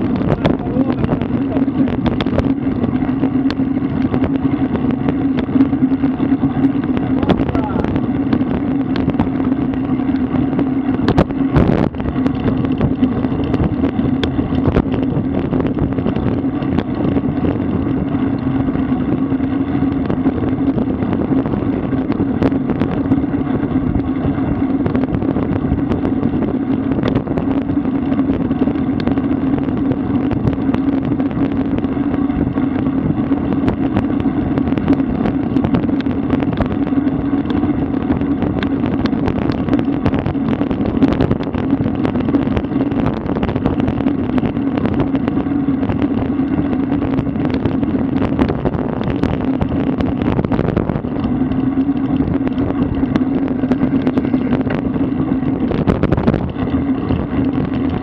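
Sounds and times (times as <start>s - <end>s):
wind rushing on microphone: 0.0s - 58.0s
bicycle clicks and rattles: 8.3s - 23.3s, 51.0s - 58.0s.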